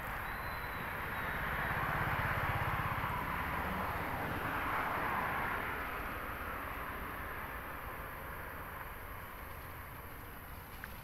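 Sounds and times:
motor vehicle passing: 0:00.0 - 0:05.7
outdoor background noise: 0:00.0 - 0:11.0.

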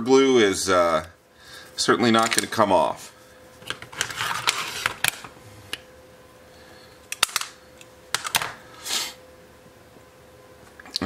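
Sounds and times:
rustling scrape: 0:03.5 - 0:05.0.

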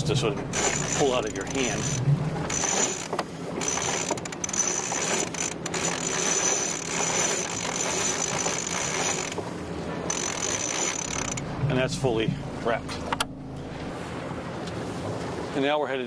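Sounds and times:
line hauled around winch drum: 0:00.0 - 0:15.7
winch clicking: 0:00.4 - 0:09.5, 0:10.1 - 0:11.4.

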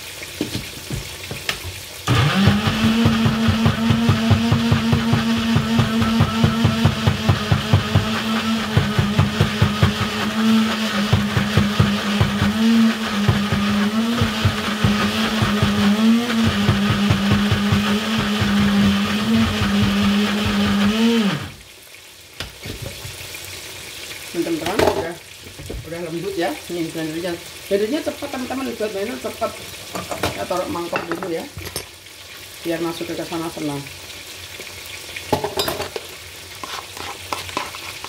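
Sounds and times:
blender motor grinding: 0:02.1 - 0:21.6.

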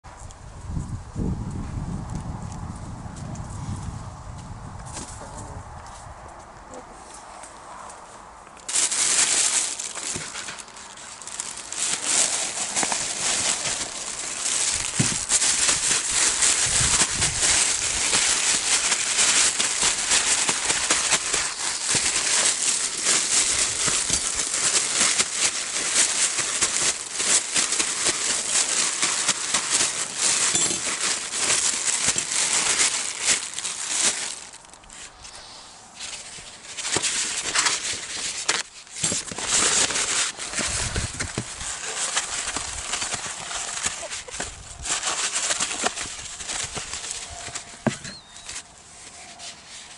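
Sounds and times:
plastic bag crinkling: 0:08.6 - 0:35.2, 0:36.0 - 0:48.7.

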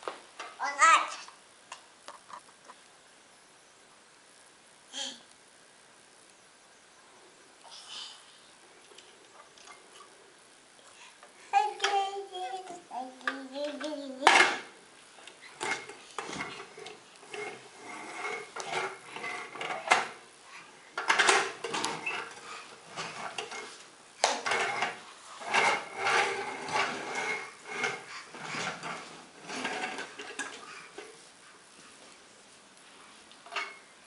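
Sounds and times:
toy tractor rolling on wooden floor: 0:11.6 - 0:20.2, 0:20.9 - 0:31.3.

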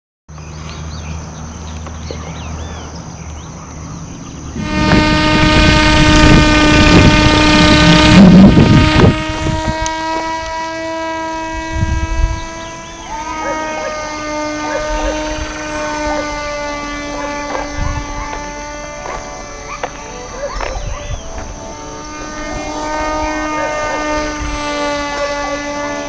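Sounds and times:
low hum: 0:00.4 - 0:26.0
wind on microphone: 0:04.1 - 0:13.6, 0:14.3 - 0:19.8, 0:20.6 - 0:26.0
small electric motor whining: 0:04.6 - 0:26.0.

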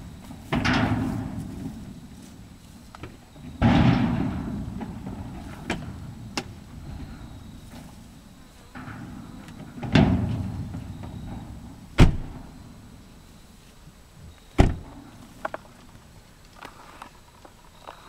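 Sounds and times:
truck doors slamming: 0:00.0 - 0:13.3, 0:14.5 - 0:15.6
truck door thud: 0:00.2 - 0:02.3, 0:03.0 - 0:13.0, 0:14.6 - 0:15.1.

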